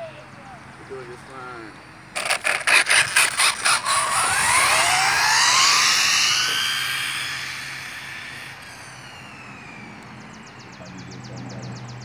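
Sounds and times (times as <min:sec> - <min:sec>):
electric motor whining: 0:02.2 - 0:10.5.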